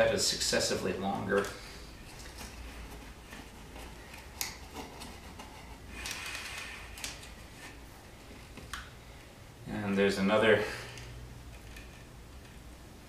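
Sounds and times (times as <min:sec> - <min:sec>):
low steady hum: 0:00.0 - 0:13.0
wire handling noises: 0:00.7 - 0:09.0, 0:10.8 - 0:12.7.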